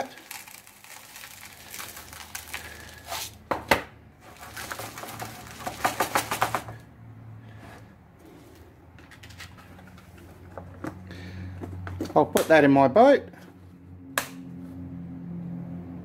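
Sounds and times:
salt pouring trickle: 0.0 - 2.9
crunching scrapes of salt: 0.0 - 3.4.

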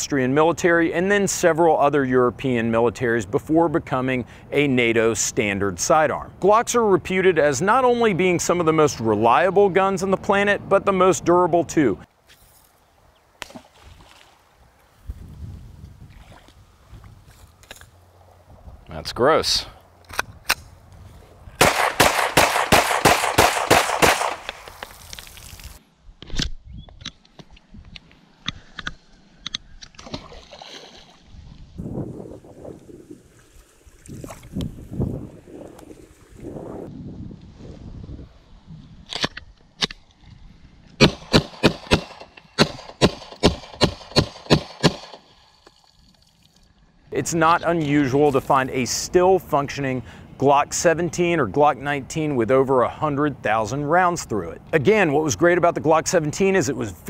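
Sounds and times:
pistol fired rapidly: 21.6 - 24.6, 41.0 - 45.2.

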